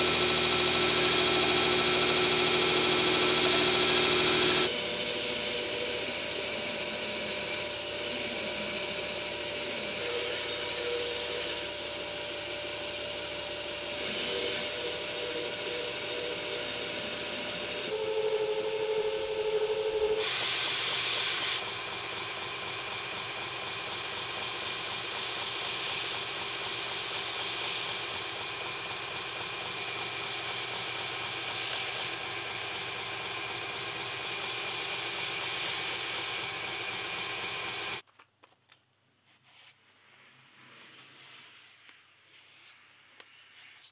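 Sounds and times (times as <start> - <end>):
blade grinding on belt: 0.0 - 12.2, 29.2 - 38.0
machine humming: 0.0 - 38.0.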